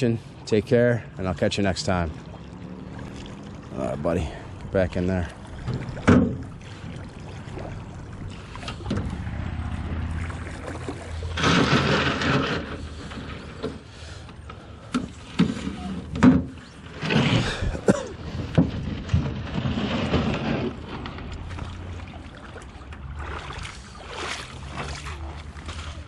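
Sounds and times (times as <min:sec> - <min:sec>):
water sloshing underfoot: 0:01.0 - 0:26.0
fish splashing into water: 0:05.4 - 0:11.4, 0:20.7 - 0:26.0
hull scraping on gravel: 0:08.2 - 0:22.2.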